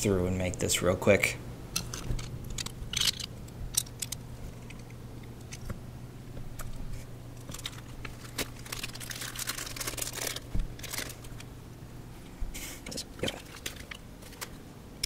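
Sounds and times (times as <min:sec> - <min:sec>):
plastic bag crinkling and tearing: 0:07.4 - 0:11.5, 0:13.2 - 0:14.6.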